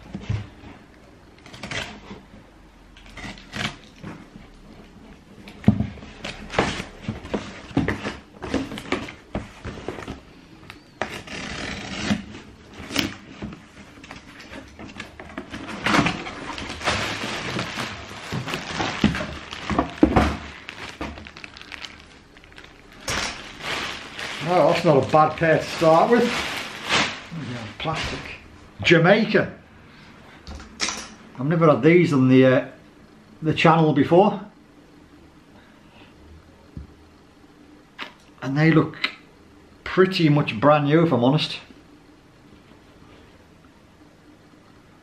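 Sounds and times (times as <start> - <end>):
plastic packaging crinkling: 13.9 - 28.4.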